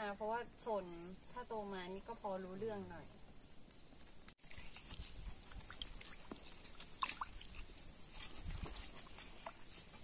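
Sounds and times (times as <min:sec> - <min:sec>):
small wet clicks and drips: 0:03.7 - 0:10.0
water sloshing in basin: 0:04.4 - 0:10.0.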